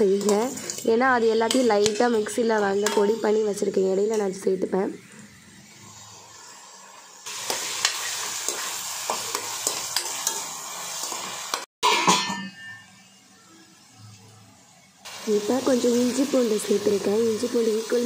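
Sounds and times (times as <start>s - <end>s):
spoon scraping a metal pan: 0.0s - 3.5s
onions sizzling in a pan: 0.0s - 12.2s, 15.0s - 18.0s.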